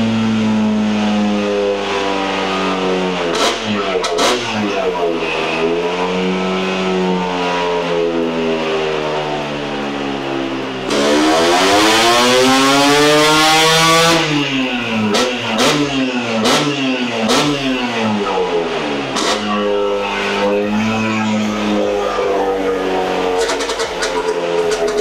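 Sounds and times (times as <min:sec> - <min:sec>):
scooter engine revving: 0:00.0 - 0:09.8, 0:10.8 - 0:25.0
exhaust cracks: 0:03.2 - 0:06.0, 0:14.1 - 0:25.0.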